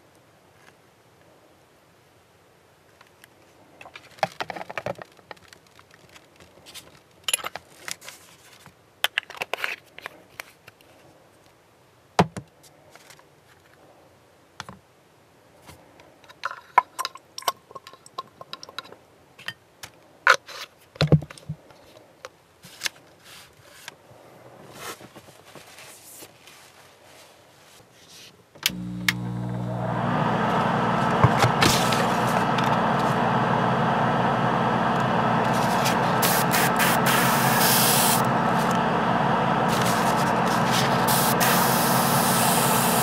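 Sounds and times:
plastic parts clicking and scraping: 0:03.0 - 0:11.0, 0:16.0 - 0:24.0.

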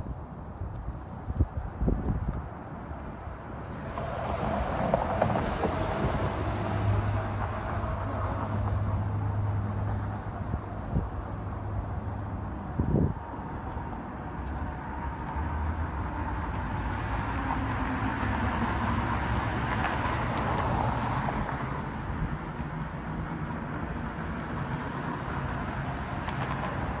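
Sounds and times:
street traffic rumble: 0:00.0 - 0:27.0
vehicle passing: 0:03.7 - 0:10.8.

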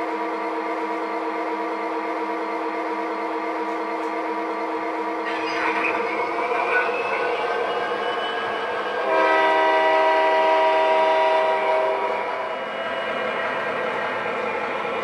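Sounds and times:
model locomotive engine running: 0:00.0 - 0:12.6
locomotive horn blast: 0:09.0 - 0:12.1.

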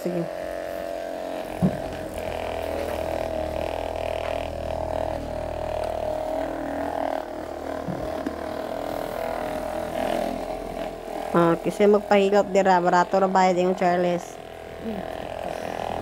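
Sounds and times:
massage gun motor humming: 0:00.0 - 0:16.0.

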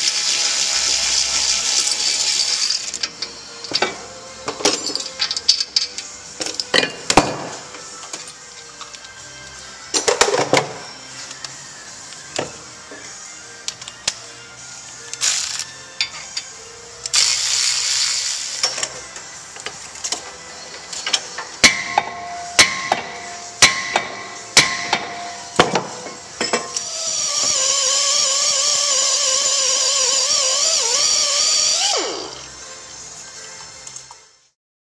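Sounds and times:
pneumatic air tool hissing: 0:17.1 - 0:18.8
sharp metallic knocks: 0:21.6 - 0:25.9
air tool spinning whine: 0:26.8 - 0:32.6.

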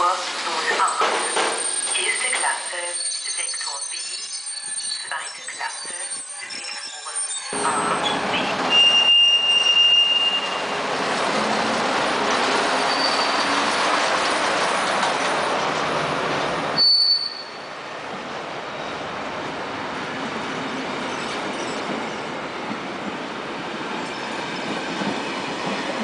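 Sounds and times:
high-pitched wheel squeal: 0:01.3 - 0:10.8, 0:12.8 - 0:13.6, 0:16.8 - 0:17.7
train wheels rumbling on rails: 0:05.7 - 0:16.8, 0:18.0 - 0:26.0.

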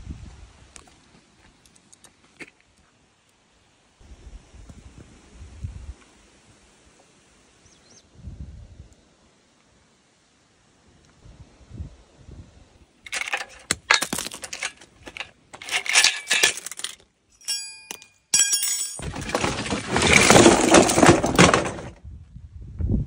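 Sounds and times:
rustling plastic and paper: 0:13.1 - 0:17.0, 0:19.0 - 0:21.9
ringing metallic or glass clinks: 0:14.5 - 0:19.2.

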